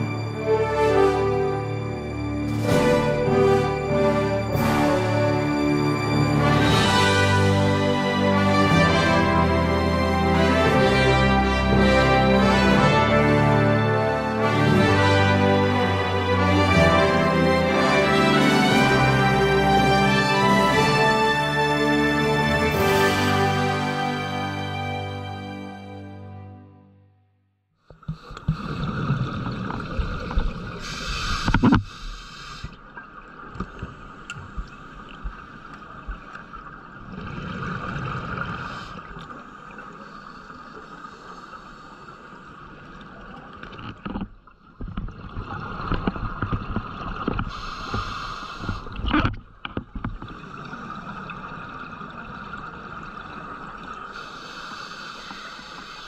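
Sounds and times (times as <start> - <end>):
underwater hum: 27.8 - 56.0
diver exhaling bubbles: 28.1 - 31.7.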